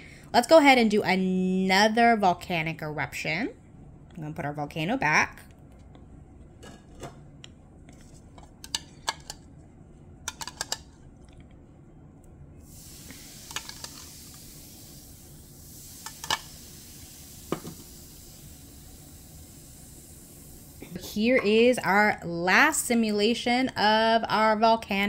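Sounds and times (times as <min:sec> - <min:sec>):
fizzing hiss: 0:12.6 - 0:21.0.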